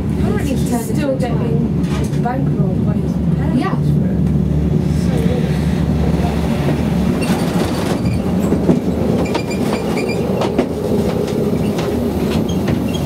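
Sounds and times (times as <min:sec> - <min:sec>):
gondola cabin rumble: 0:00.0 - 0:13.0
sharp clacks and knocks: 0:07.2 - 0:12.9.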